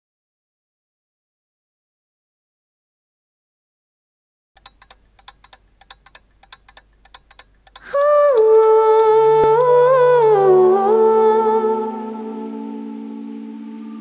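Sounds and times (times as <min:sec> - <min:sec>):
clock ticking faintly: 0:04.6 - 0:08.8
slow bending melody: 0:07.8 - 0:14.0
high shimmering wash: 0:07.9 - 0:14.0.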